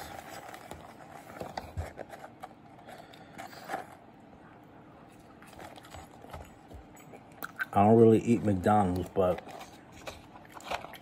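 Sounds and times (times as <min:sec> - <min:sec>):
cardboard carton rustling: 0:00.0 - 0:04.0.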